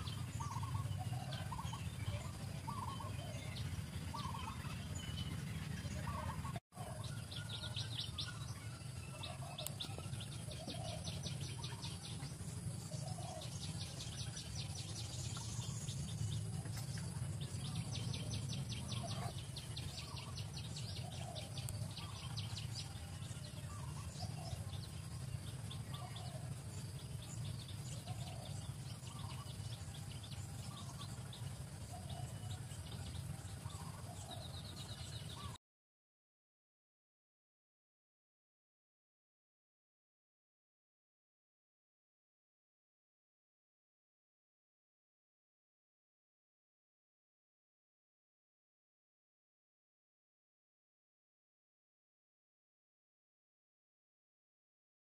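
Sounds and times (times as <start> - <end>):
bird chirps: 0.0 - 35.6
steady low rumble: 0.0 - 35.6.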